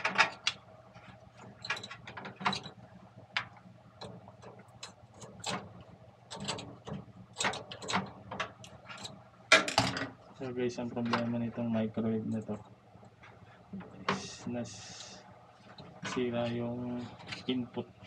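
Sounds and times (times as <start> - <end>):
clicks and rattles of metal parts: 0.0 - 0.6, 1.4 - 2.8, 3.4 - 5.7, 6.3 - 10.1
steady low hum: 0.0 - 18.0.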